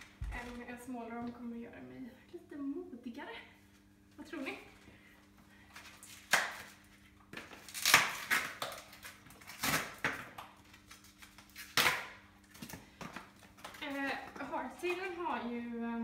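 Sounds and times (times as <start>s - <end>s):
plastic packaging crinkling: 5.7s - 15.1s.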